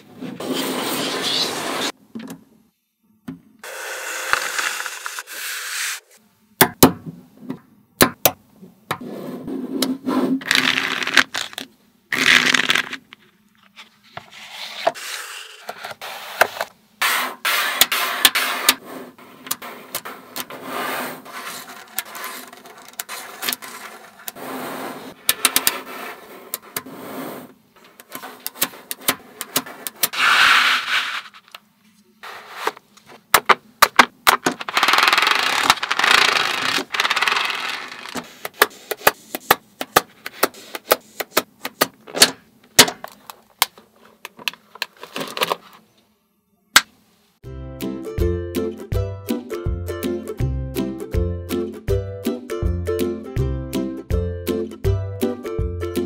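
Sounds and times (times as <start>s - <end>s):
magnets scraping on foam board: 14.5s - 31.6s, 34.6s - 39.5s.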